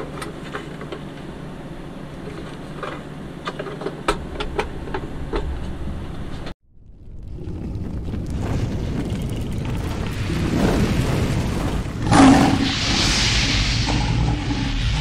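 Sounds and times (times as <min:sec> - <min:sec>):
low rumble: 0:06.6 - 0:15.0
boom: 0:06.7 - 0:15.0
hissing rush: 0:07.3 - 0:15.0.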